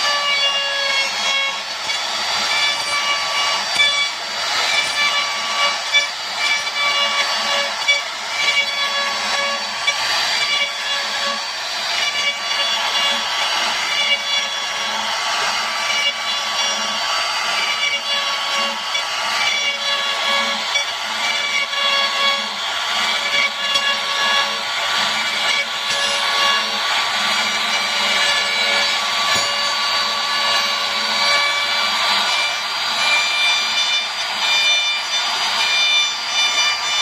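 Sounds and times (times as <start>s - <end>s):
router cutting wood: 0.0s - 37.0s.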